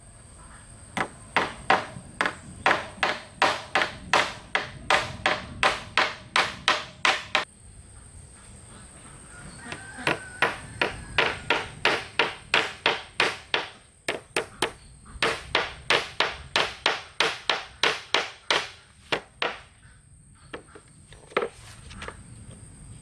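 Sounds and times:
tool striking wood: 1.0s - 7.5s, 10.0s - 19.7s.

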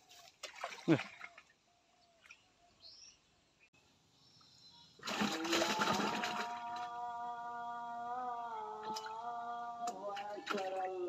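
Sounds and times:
faint bird chirps: 1.2s - 5.0s.

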